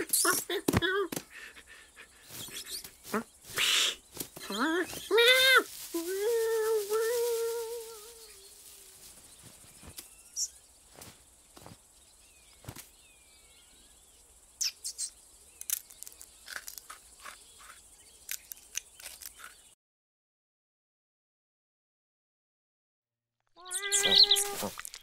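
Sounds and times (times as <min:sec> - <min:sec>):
distant bird chirps: 0:00.0 - 0:06.4, 0:07.1 - 0:19.8, 0:23.6 - 0:24.7
small clicks and rustles: 0:18.3 - 0:19.6.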